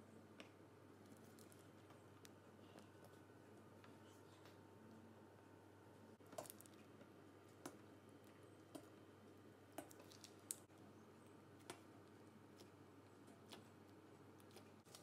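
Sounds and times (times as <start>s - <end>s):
faint room hum: 0.0s - 15.0s.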